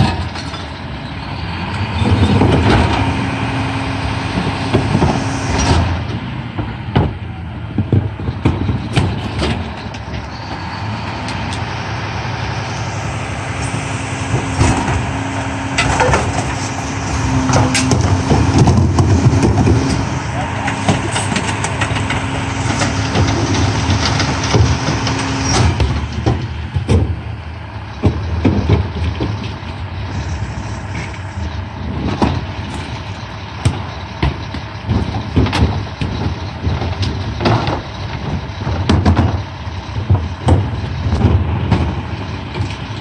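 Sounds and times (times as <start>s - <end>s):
clanks and thumps from truck body: 0.0s - 0.7s, 1.9s - 3.3s, 4.2s - 10.3s, 12.8s - 43.0s
garbage truck engine running: 0.0s - 43.0s
steady hum and heavy noise: 7.2s - 43.0s.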